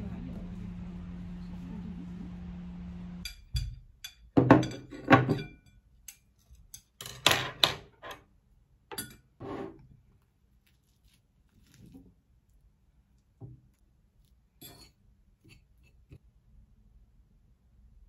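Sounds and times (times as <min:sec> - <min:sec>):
cutlery scraping on a plate: 0:08.9 - 0:09.8, 0:14.6 - 0:16.2.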